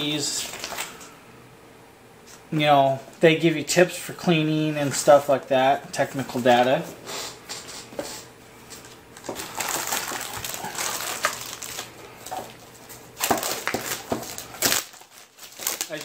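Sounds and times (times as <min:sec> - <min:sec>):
plastic wrapping crinkling: 0:00.3 - 0:01.1, 0:08.7 - 0:16.0
paper rustling: 0:00.4 - 0:01.1, 0:08.7 - 0:16.0.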